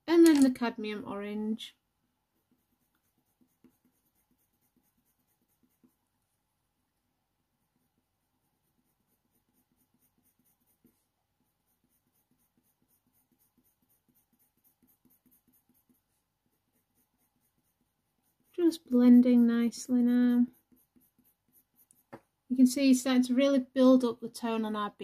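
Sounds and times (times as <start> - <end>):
pencil scratching on paper: 2.2 - 6.4, 7.6 - 23.1.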